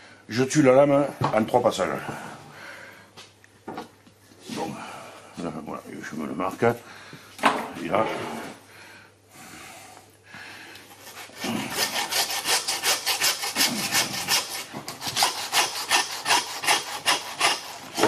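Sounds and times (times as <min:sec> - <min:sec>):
hand saw cutting bone: 0:10.9 - 0:18.0.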